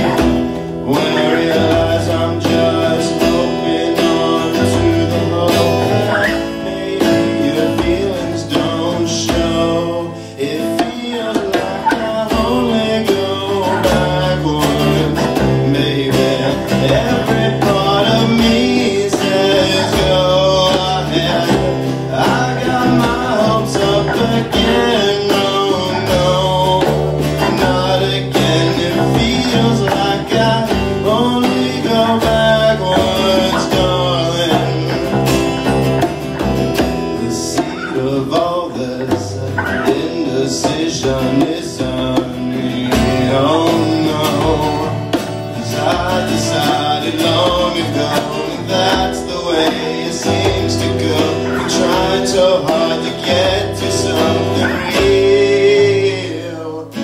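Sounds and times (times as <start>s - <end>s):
hand drumming on djembe: 0.0s - 56.6s
man singing: 0.0s - 57.0s
strummed acoustic guitar: 0.0s - 57.0s.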